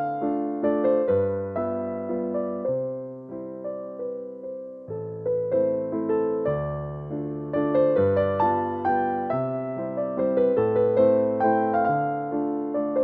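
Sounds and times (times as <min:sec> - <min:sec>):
soft piano piece: 0:00.0 - 0:13.0.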